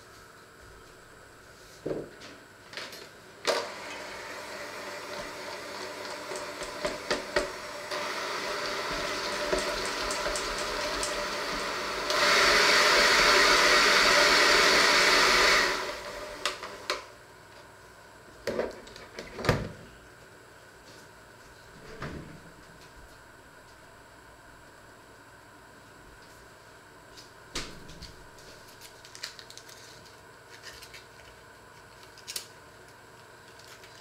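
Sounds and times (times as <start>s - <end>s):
electric hand mixer running: 3.5s - 17.1s.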